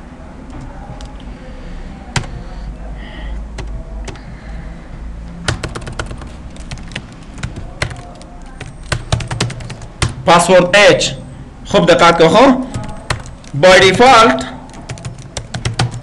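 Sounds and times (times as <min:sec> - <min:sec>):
computer keyboard typing: 0:02.1 - 0:02.4, 0:03.5 - 0:04.3, 0:05.4 - 0:10.2, 0:12.7 - 0:16.0.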